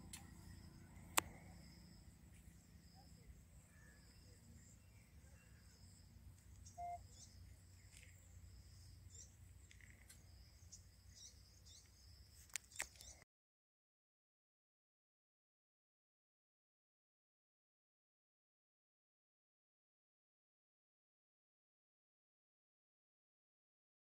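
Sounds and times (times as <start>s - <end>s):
high repeated chirping: 6.6s - 7.3s.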